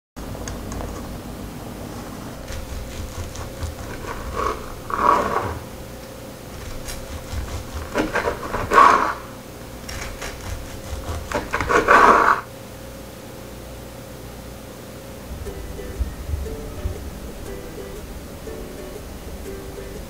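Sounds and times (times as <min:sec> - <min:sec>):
knife cutting crunchy crust: 0:02.4 - 0:05.6, 0:06.6 - 0:09.2, 0:09.8 - 0:12.4.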